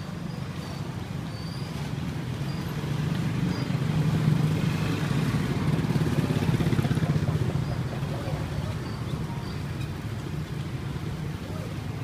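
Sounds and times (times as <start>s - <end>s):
street traffic: 0.0s - 12.0s
motor scooter engine passing: 3.7s - 7.7s.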